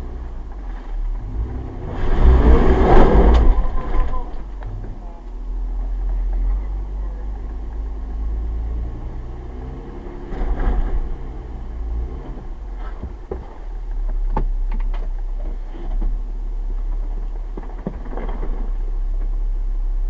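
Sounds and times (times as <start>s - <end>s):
car engine idling: 0.0s - 10.1s, 10.8s - 20.0s
sharp clicks and knocks: 12.8s - 16.2s.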